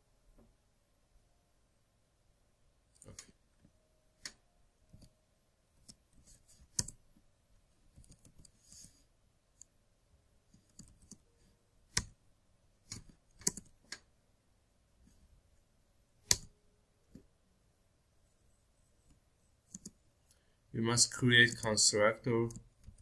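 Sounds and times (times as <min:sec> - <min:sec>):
keyboard typing clicks: 0:06.7 - 0:07.0, 0:10.6 - 0:11.3, 0:12.9 - 0:14.0, 0:19.7 - 0:20.0.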